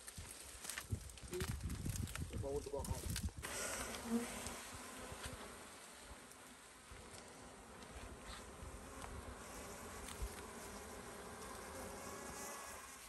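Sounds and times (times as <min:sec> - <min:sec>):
honeybees buzzing: 0:03.4 - 0:13.0.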